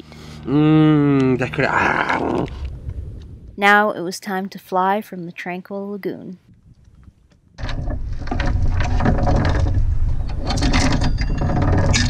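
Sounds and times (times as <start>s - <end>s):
steady low rumble: 0.1s - 5.0s, 6.4s - 12.0s
anchor chain clanking and rattling: 7.6s - 12.0s.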